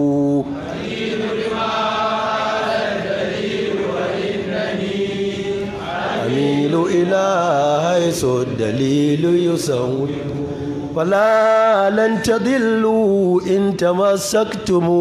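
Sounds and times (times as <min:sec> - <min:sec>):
man chanting: 0:00.0 - 0:00.6, 0:06.2 - 0:15.0.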